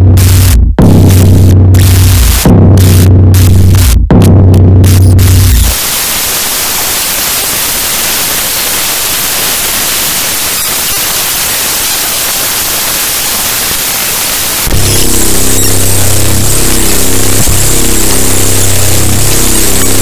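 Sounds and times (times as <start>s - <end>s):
harsh static noise music: 0.0s - 20.0s
low humming drone: 14.7s - 20.0s.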